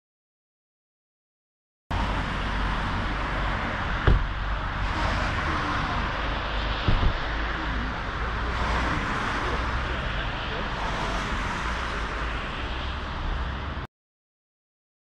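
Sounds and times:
low outdoor rumble: 0:03.0 - 0:10.8
dull thumps: 0:04.0 - 0:04.3, 0:06.8 - 0:07.2.

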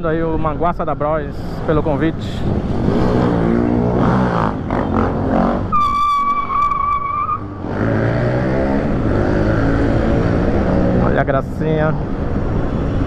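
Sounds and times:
sharp high squeal: 0:05.7 - 0:07.5.

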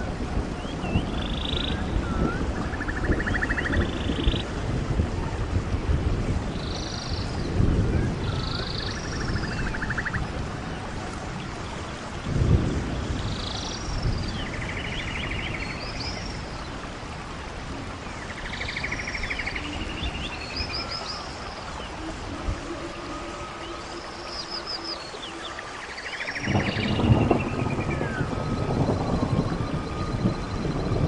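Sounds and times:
falling water and rain: 0:00.0 - 0:31.0
birds trilling: 0:18.0 - 0:31.0
birds whistling: 0:18.3 - 0:31.0.

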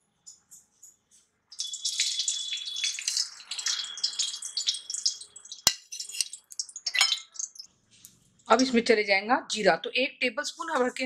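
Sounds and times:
ghee sizzling in hot oil: 0:01.5 - 0:07.7.

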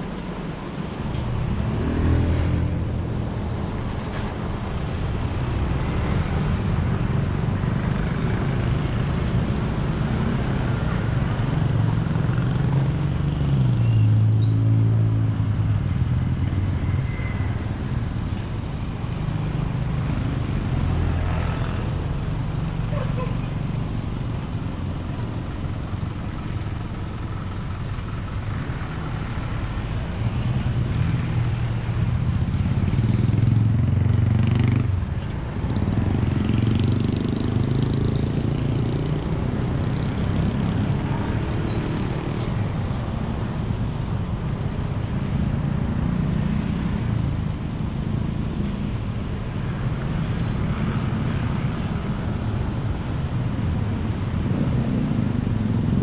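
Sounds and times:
cars passing: 0:00.0 - 0:56.0
motor scooters passing: 0:29.8 - 0:42.4.

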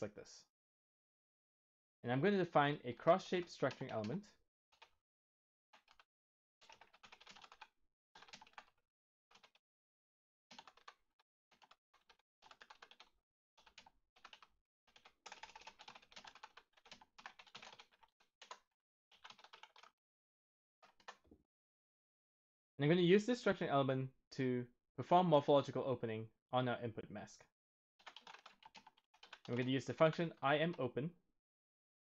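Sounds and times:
typing on computer keyboard: 0:03.6 - 0:04.2, 0:04.8 - 0:05.0, 0:05.8 - 0:06.0, 0:06.6 - 0:09.6, 0:10.5 - 0:19.9, 0:20.8 - 0:21.3, 0:28.0 - 0:30.2.

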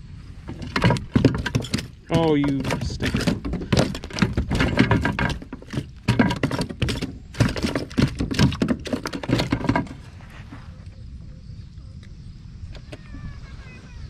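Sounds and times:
fish flopping on plastic: 0:00.4 - 0:10.2.

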